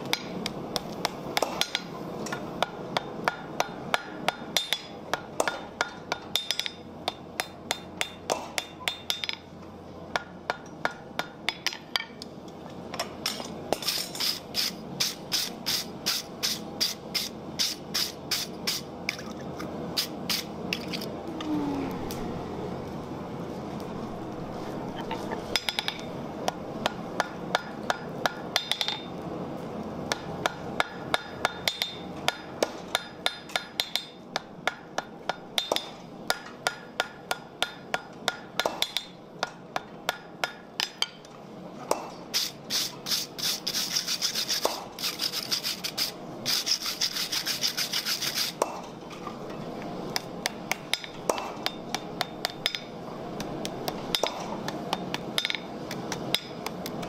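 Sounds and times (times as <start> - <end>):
hammer striking iron on an anvil: 0.1 - 9.4, 10.1 - 12.2, 25.5 - 29.1, 30.1 - 41.2, 50.2 - 52.9, 54.1 - 55.7, 56.3 - 56.8.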